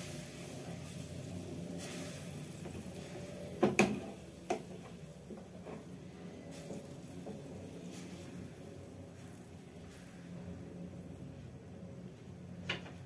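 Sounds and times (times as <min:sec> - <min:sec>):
noodles simmering in water: 0:00.0 - 0:11.2
steady low hum: 0:00.0 - 0:13.0.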